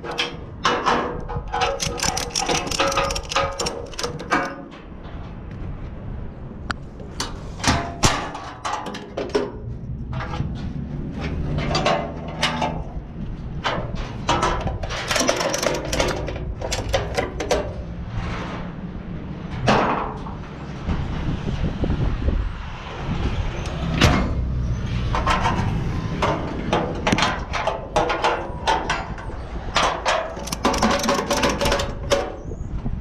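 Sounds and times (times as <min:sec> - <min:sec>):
ratchet strap clicks and clanks: 0:01.6 - 0:04.6, 0:15.0 - 0:17.6, 0:30.3 - 0:32.2.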